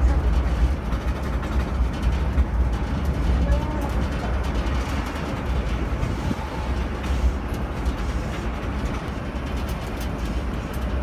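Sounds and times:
road train engine and road rumble: 0.0 - 11.0.

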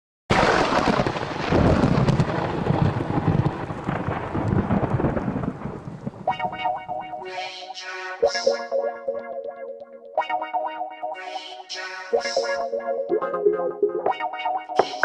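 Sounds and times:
steady rain: 0.3 - 6.4
thunder rumbling: 0.3 - 7.3
guitar music with heavy effects: 6.3 - 15.0.

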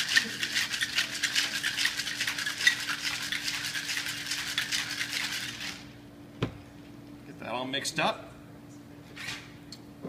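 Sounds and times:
ice rattling in cocktail shaker: 0.0 - 5.9.

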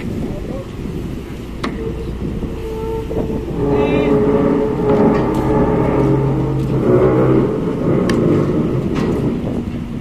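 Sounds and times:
engines rumbling: 0.0 - 10.0
humming tone shifting pitch: 1.6 - 9.1.

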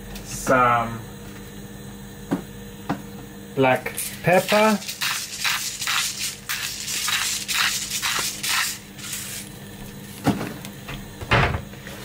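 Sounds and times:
pepper grinder grinding: 4.0 - 9.6.

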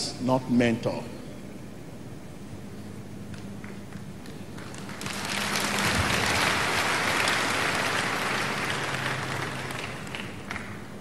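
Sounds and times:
congregation applauding: 3.6 - 11.0.

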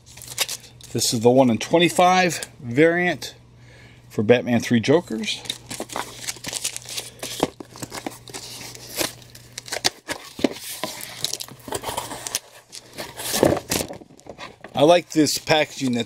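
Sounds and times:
plastic packaging crinkling: 0.0 - 1.0, 5.2 - 16.0.

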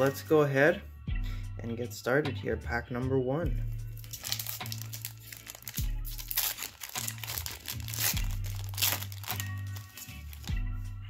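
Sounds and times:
background music with bass beat: 0.0 - 11.0
wrapper crinkling and tearing: 4.0 - 10.6.

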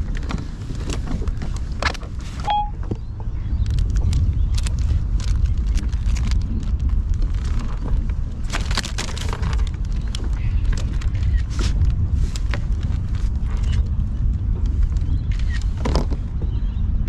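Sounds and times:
clicks and knocks of handling: 0.0 - 2.2
wind buffeting microphone: 0.0 - 17.0.

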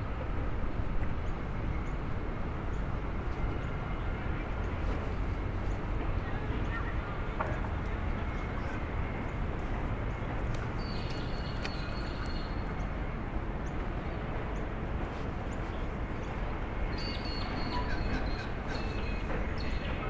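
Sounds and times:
city traffic hum: 0.0 - 20.0.

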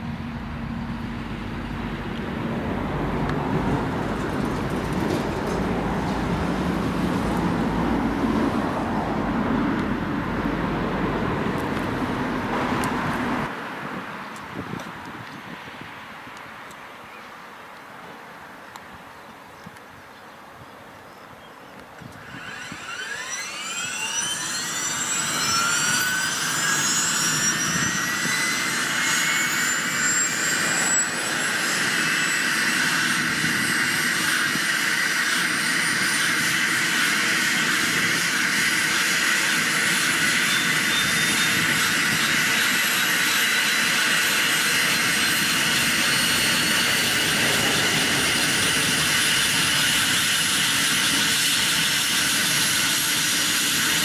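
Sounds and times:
helicopter turbine whine: 22.1 - 54.0.

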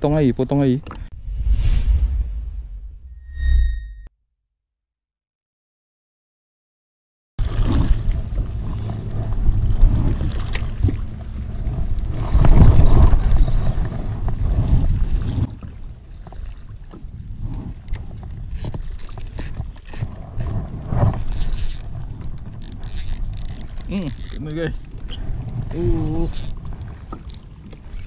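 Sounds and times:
water lapping: 7.4 - 28.0
wind rumbling on microphone: 7.4 - 28.0
gear clicks and knocks: 18.6 - 25.7.

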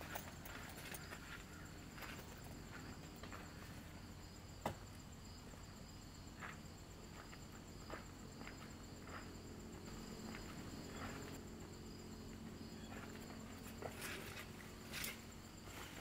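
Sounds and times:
insects chirring: 0.0 - 16.0.

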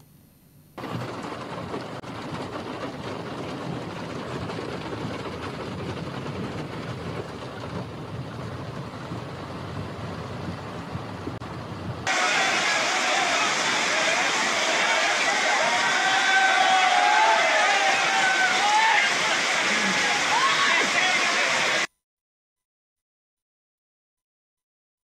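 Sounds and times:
floodwater rushing: 0.8 - 21.9.

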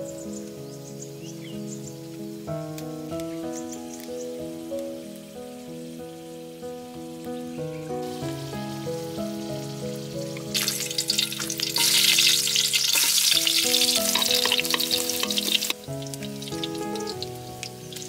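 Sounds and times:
soft background music: 0.0 - 18.0
ribs sizzling in hot oil: 8.0 - 18.0.

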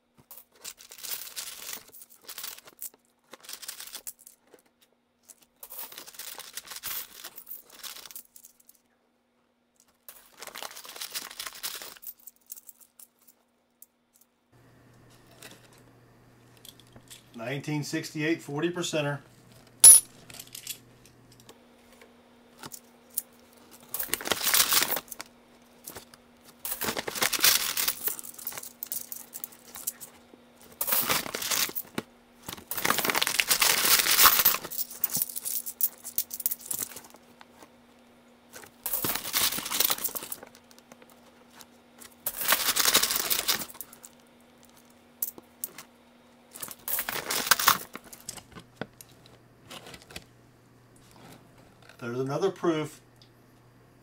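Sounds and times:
plastic coin bag crinkling: 0.3 - 4.7, 5.3 - 8.8, 9.9 - 13.4, 22.6 - 37.7, 38.5 - 45.9, 46.5 - 50.2.

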